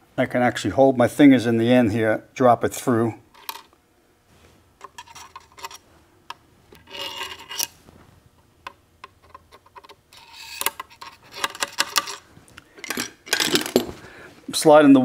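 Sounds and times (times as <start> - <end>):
steel parts scraping: 4.8 - 5.8, 6.8 - 7.8, 9.2 - 13.8.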